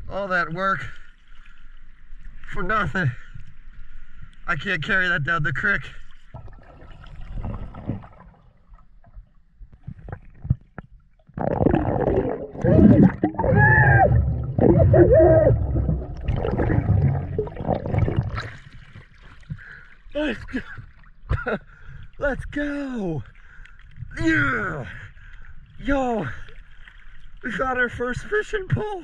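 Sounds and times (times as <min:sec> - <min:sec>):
underwater gurgling: 0:06.2 - 0:21.5
low rumble: 0:11.6 - 0:18.5.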